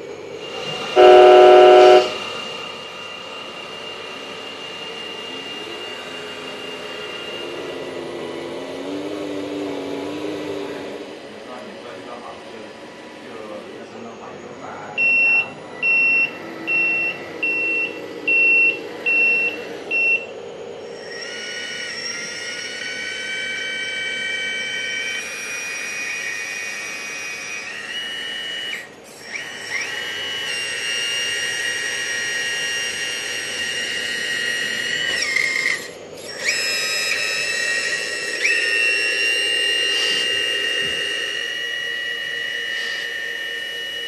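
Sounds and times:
hydraulic pump whining: 0.0s - 44.0s
electronic beeper: 1.0s - 2.2s, 15.0s - 20.3s.

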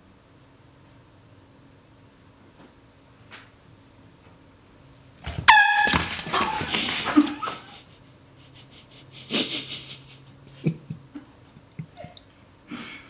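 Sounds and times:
scuffling clatter: 5.2s - 7.8s
air horn blast: 5.4s - 6.3s.

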